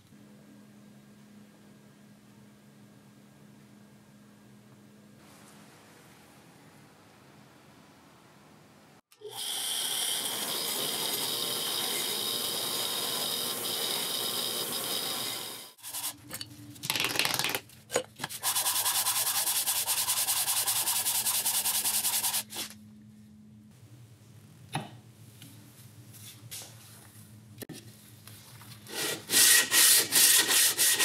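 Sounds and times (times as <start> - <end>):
sanding rusty metal: 18.4 - 22.4, 29.2 - 31.0.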